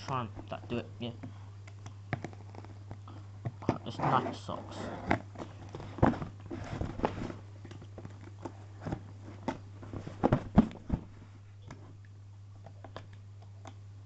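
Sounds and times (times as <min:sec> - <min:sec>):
scrapes and knocks on cardboard: 0:05.0 - 0:07.4, 0:08.8 - 0:11.2.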